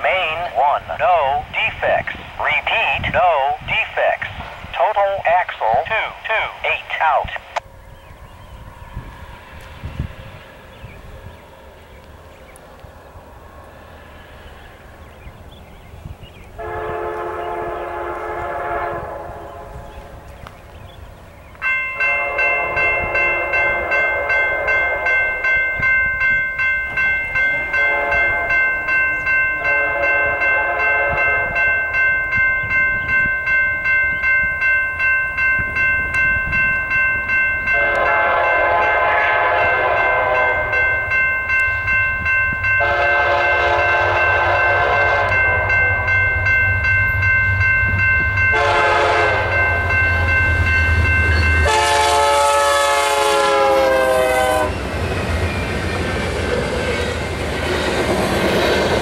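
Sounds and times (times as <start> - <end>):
train horn blasts: 16.6 - 20.3, 22.0 - 25.5, 27.4 - 28.9, 29.5 - 32.0, 37.6 - 41.1, 42.7 - 46.4, 48.5 - 50.4, 51.0 - 54.8
bell ringing: 21.6 - 39.1, 40.0 - 52.0.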